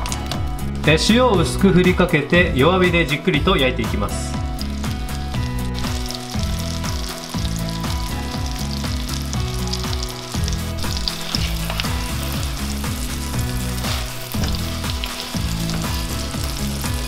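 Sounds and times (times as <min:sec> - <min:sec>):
background music: 0:00.0 - 0:17.0
onions sizzling in frying pan: 0:04.4 - 0:17.0.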